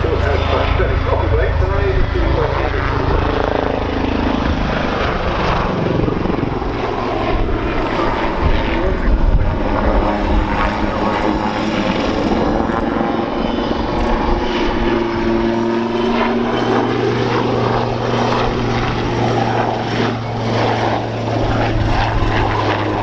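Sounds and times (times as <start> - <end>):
helicopter droning in flight: 0.0 - 23.0.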